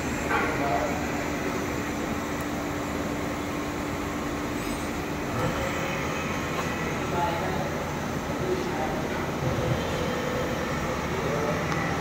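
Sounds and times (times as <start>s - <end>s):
machinery humming: 0.0s - 12.0s.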